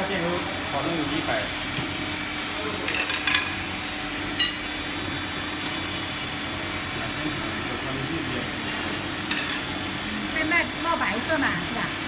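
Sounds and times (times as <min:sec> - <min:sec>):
induction furnace humming and hissing: 0:00.0 - 0:12.0
short sharp metallic ring: 0:04.4 - 0:04.7.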